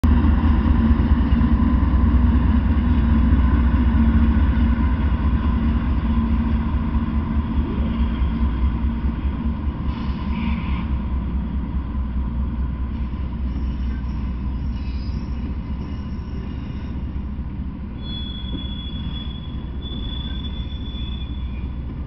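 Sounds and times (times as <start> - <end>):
diesel locomotives rumbling: 0.0 - 22.0.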